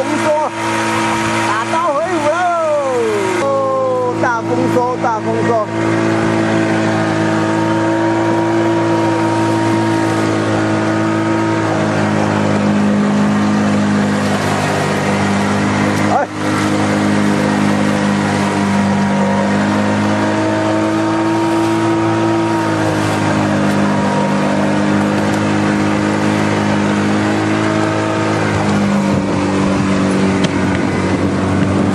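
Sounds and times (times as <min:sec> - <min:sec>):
boat engine running: 0:00.0 - 0:31.9.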